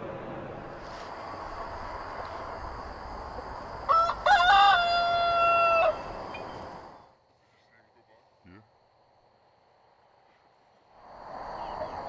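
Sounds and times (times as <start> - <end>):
rooster crowing: 3.4 - 6.9.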